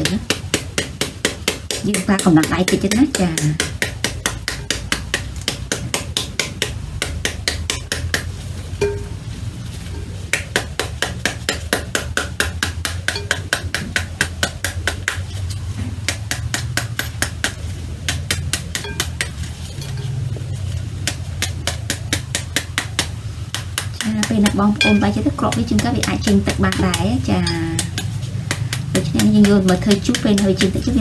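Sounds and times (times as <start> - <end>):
metal spoon whacking pomegranate: 18.1 - 20.2, 24.0 - 31.0.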